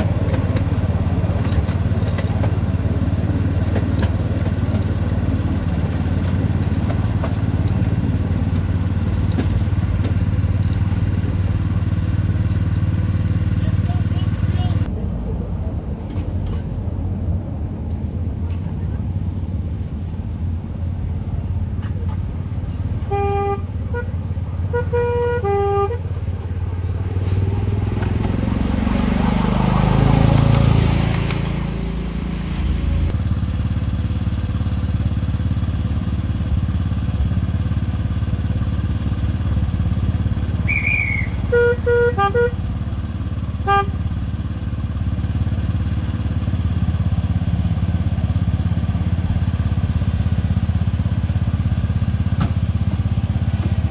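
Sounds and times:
locomotive engine running: 0:00.0 - 0:53.9
two-tone horn toots: 0:23.0 - 0:26.1, 0:40.6 - 0:42.7, 0:43.6 - 0:44.1.

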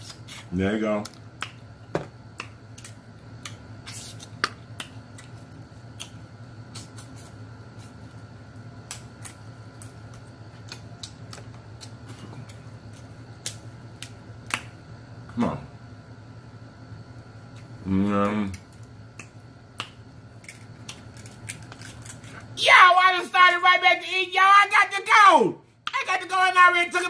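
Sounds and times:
low steady hum: 0:00.0 - 0:27.0
shellfish shells cracking: 0:18.4 - 0:22.5.

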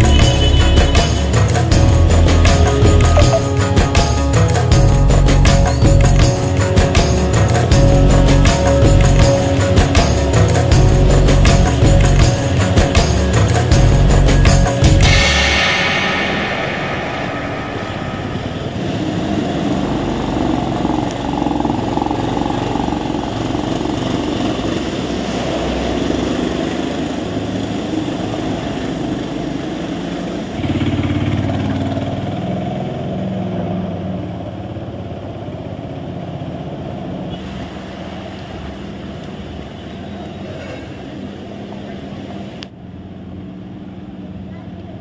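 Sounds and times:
vehicle engines: 0:00.0 - 0:16.9, 0:18.2 - 0:45.0
heavy vehicle rumble: 0:00.0 - 0:33.7.

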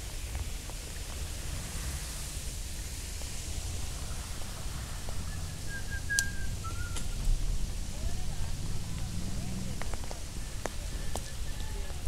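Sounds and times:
rain: 0:00.0 - 0:12.0
high whistled call: 0:05.3 - 0:07.2.

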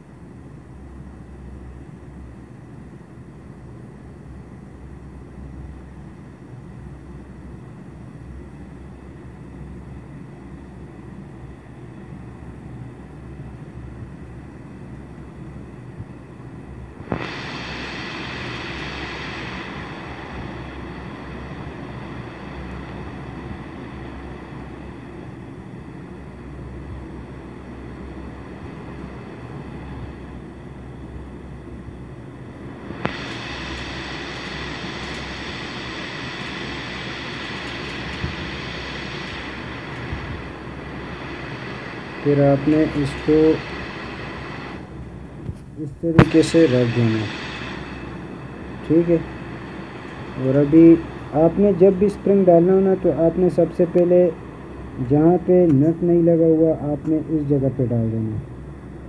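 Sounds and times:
steady machine hum: 0:00.0 - 0:59.0
whirring hiss: 0:04.2 - 0:59.0
sharp click: 0:45.5 - 0:46.5.

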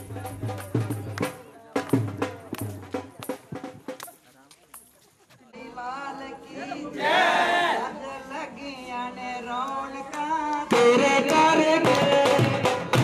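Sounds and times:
drum beat: 0:00.0 - 0:04.2, 0:10.7 - 0:13.0
group of voices singing: 0:05.5 - 0:12.8.

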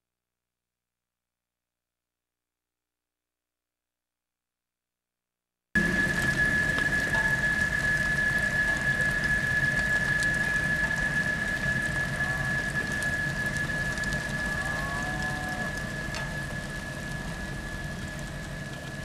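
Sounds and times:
continuous high tone: 0:05.8 - 0:19.0.

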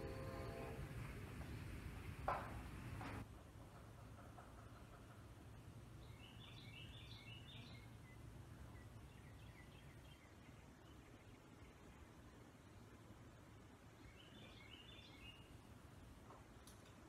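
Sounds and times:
low steady hum: 0:00.0 - 0:17.0
small bird chirping: 0:06.0 - 0:12.8, 0:14.0 - 0:15.6.

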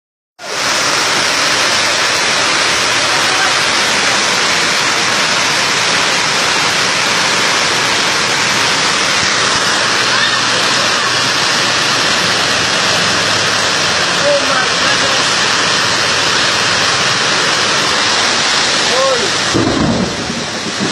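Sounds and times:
torrential rain pouring: 0:00.4 - 0:20.9.

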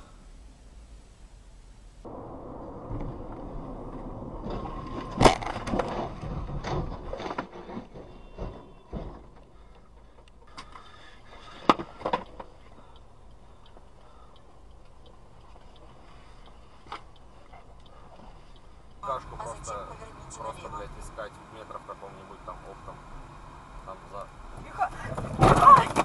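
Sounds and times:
road noise: 0:00.0 - 0:26.0
car crash bang: 0:02.1 - 0:09.4, 0:25.1 - 0:26.0
clatter of knocks: 0:04.4 - 0:10.8.

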